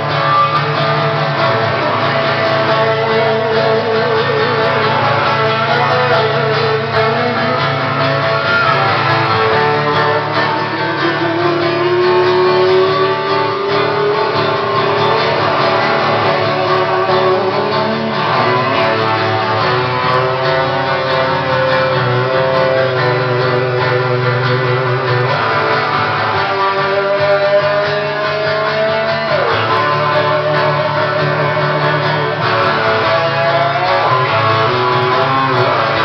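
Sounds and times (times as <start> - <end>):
sliding held lead guitar notes: 0.0 - 36.0
strummed acoustic guitar: 0.0 - 36.0.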